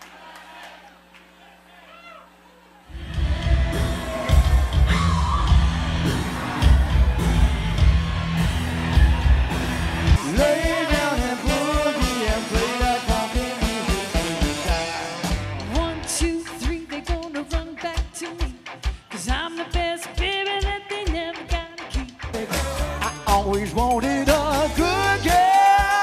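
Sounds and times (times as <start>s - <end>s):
live pop-rock band: 2.9s - 26.0s
woman singing: 15.7s - 22.5s.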